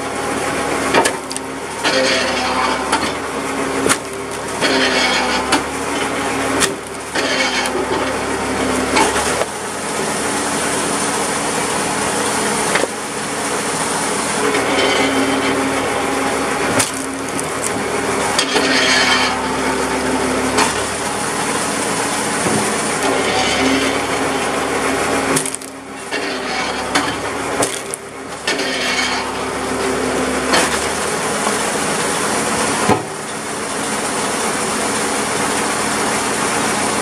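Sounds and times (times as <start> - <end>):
tractor and hydraulic pump hum: 0.0 - 37.0
wood cracking and splintering: 0.9 - 10.8, 14.4 - 19.9, 20.6 - 29.7, 30.5 - 31.9.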